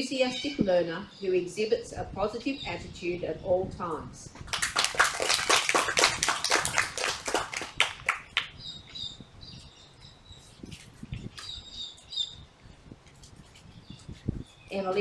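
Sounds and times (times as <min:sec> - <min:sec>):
hand clapping: 0:04.5 - 0:08.5
small bird chirping: 0:08.5 - 0:12.5.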